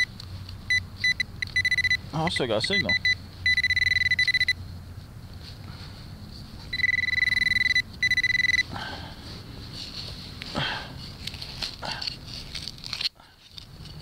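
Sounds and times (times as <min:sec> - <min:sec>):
metal detector pulsing alert tone: 0:00.7 - 0:04.6, 0:06.7 - 0:08.7.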